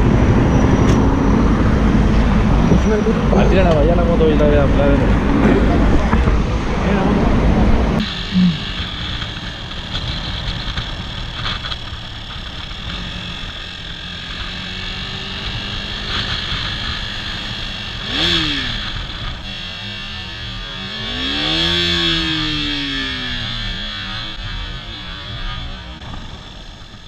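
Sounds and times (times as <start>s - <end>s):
wind noise on helmet: 5.2s - 6.7s, 8.6s - 19.5s, 26.0s - 27.0s
motorcycle engine running: 8.0s - 27.0s.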